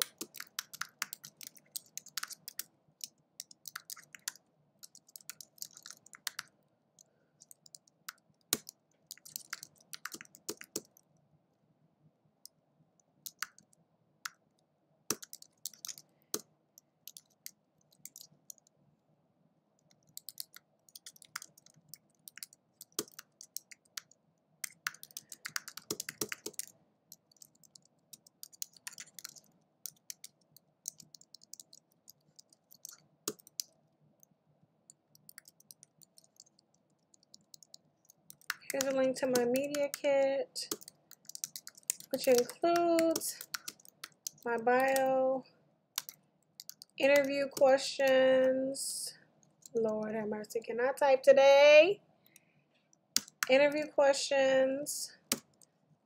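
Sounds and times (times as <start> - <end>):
computer keyboard typing: 0.0 - 6.5, 7.4 - 11.1, 13.2 - 14.4, 15.1 - 18.7, 19.8 - 34.3, 34.9 - 45.2, 46.0 - 47.8, 49.4 - 50.0, 53.1 - 53.9, 55.2 - 55.7.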